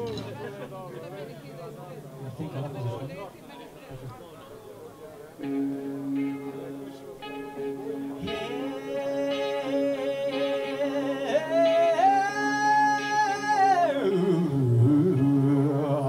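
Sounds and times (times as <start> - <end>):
person singing long held notes: 7.6 - 16.0.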